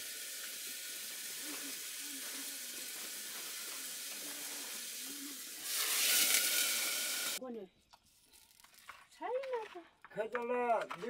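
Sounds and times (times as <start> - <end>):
food sizzling: 0.0 - 7.4.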